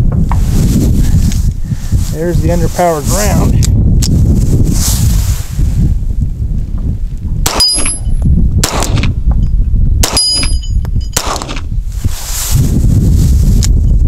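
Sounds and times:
pistol shots: 7.4s - 8.0s, 8.6s - 9.1s, 11.2s - 11.7s
steel target clanging: 10.1s - 11.5s.

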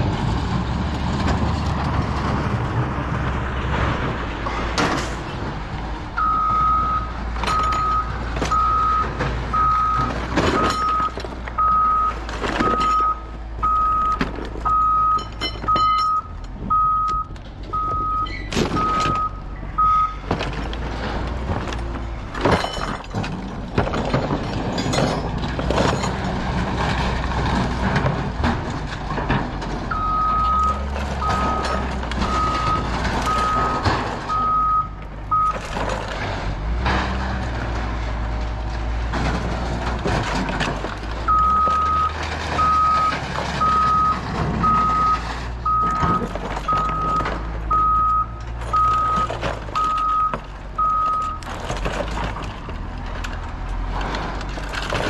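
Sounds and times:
diesel engine rumble: 0.0s - 55.0s
reverse alarm beeping: 12.7s - 20.2s, 29.9s - 35.6s.

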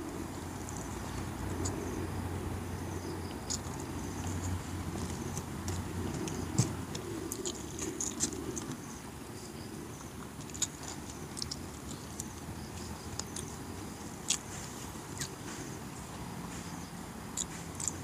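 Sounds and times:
steady low hum: 0.0s - 18.0s
man chewing and smacking lips: 3.2s - 8.9s, 10.0s - 18.0s.

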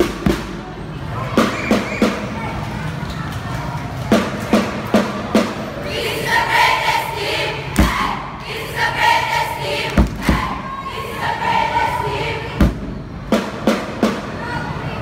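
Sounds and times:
cheering squad singing in unison: 5.8s - 12.8s
heavy thumps: 7.8s - 8.2s.

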